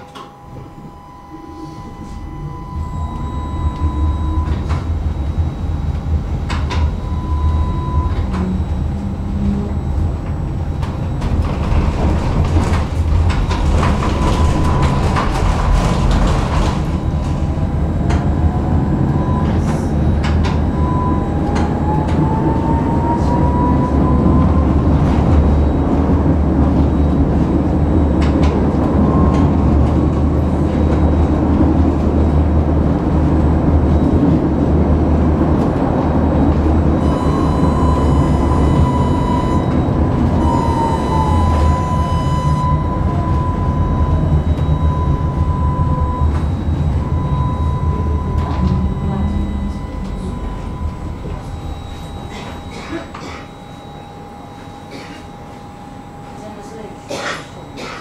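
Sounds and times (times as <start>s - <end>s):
tram rumbling on rails: 0.0s - 58.0s
thin rising whine: 36.3s - 56.4s.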